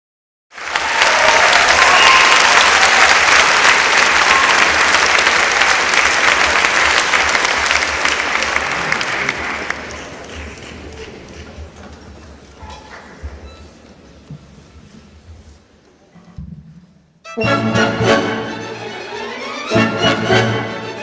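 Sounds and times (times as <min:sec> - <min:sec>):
audience applauding: 0:00.5 - 0:11.6.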